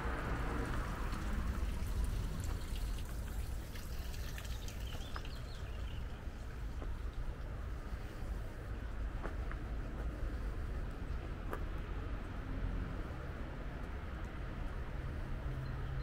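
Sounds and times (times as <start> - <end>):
water running and trickling: 0.0 - 8.0
steady low rumble: 0.0 - 15.4.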